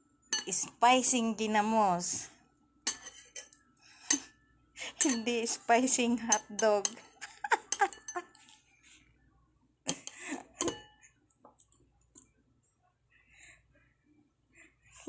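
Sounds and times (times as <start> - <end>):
fork scraping a ceramic bowl: 2.9 - 4.3, 4.9 - 5.4, 6.3 - 8.4.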